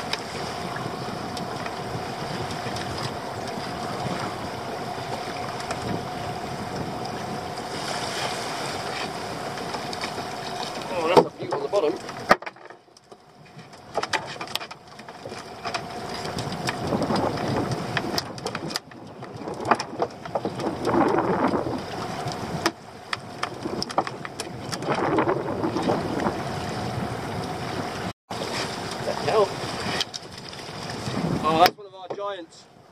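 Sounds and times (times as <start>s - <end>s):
water sloshing against boat: 0.0s - 32.9s
sharp clicks and knocks: 9.6s - 21.2s.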